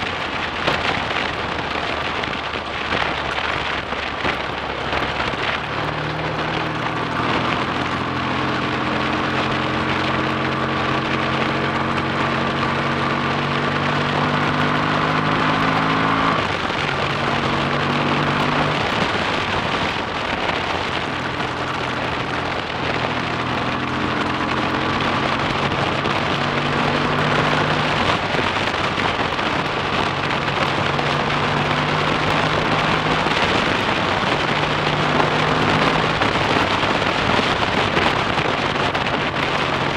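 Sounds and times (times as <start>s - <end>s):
motorcycle engine revving: 0.0s - 39.9s
wind rushing on microphone: 0.0s - 39.9s.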